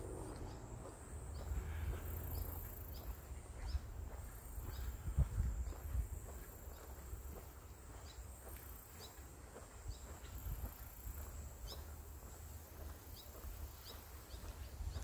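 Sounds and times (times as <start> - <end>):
bird chirping: 0.0 - 15.0
wind rustling grass: 0.0 - 15.0
wind rumble on microphone: 1.4 - 7.4, 9.8 - 11.8, 13.2 - 15.0.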